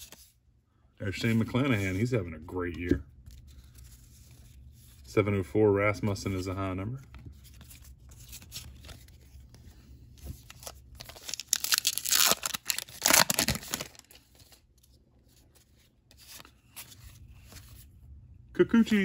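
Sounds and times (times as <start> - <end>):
cards rustling: 1.1 - 5.2, 6.3 - 17.9
wrapper tearing and crinkling: 10.9 - 14.2.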